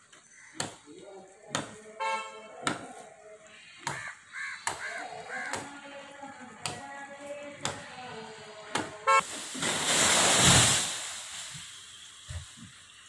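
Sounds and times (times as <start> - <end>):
crows cawing: 0.2 - 0.8, 3.6 - 5.7.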